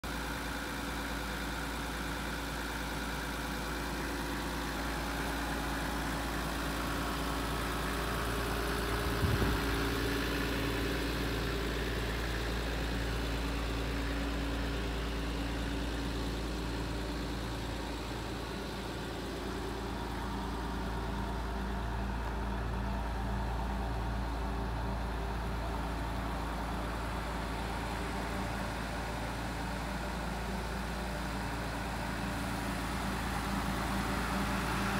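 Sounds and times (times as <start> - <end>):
diesel engine idling: 0.0 - 34.9.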